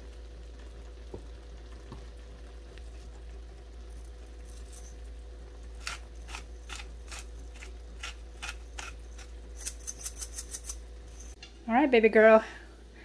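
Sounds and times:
pepper grinder rasping clicks: 0:05.8 - 0:10.8.

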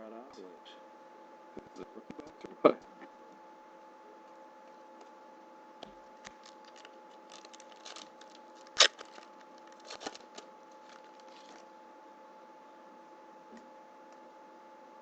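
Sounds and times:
faint steady hum: 0:00.0 - 0:15.0
trading cards rustling: 0:06.2 - 0:11.6.

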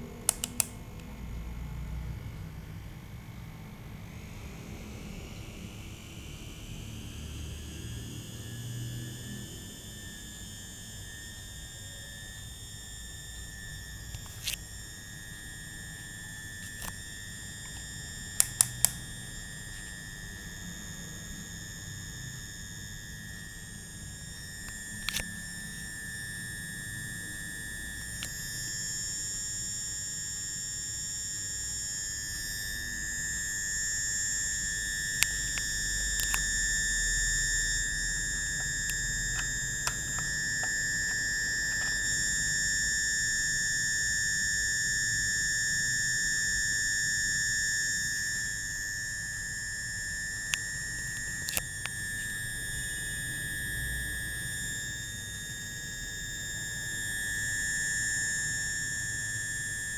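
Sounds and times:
high-pitched electronic whine: 0:00.0 - 0:59.9.

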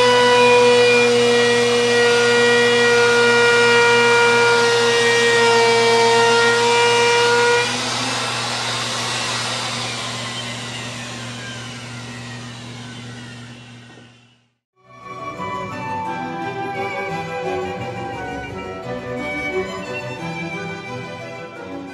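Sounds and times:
router motor whining: 0:00.0 - 0:14.5.

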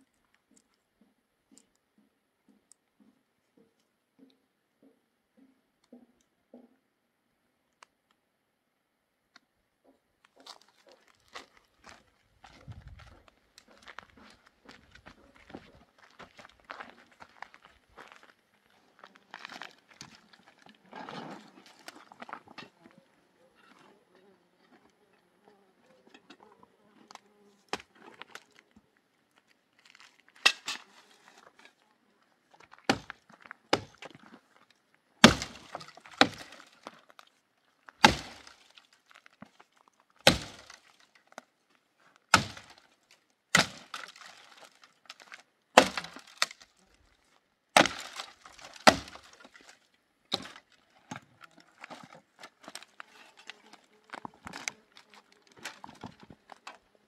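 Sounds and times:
firewood cracking: 0:32.6 - 0:41.4, 0:42.3 - 0:47.1, 0:47.7 - 0:56.9
wood splintering crackle: 0:35.2 - 0:37.3, 0:37.9 - 0:41.4, 0:42.3 - 0:47.0, 0:47.8 - 0:56.8.

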